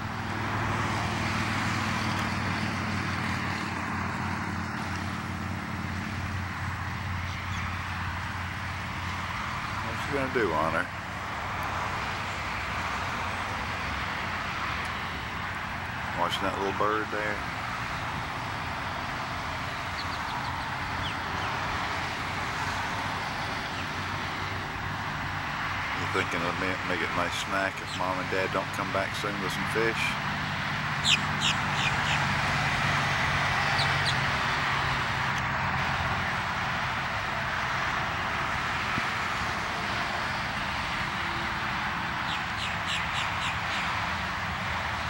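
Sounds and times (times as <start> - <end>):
distant road traffic: 0.0 - 45.0
starling chirps: 19.8 - 21.6, 31.0 - 32.3, 33.6 - 34.2, 42.2 - 43.9.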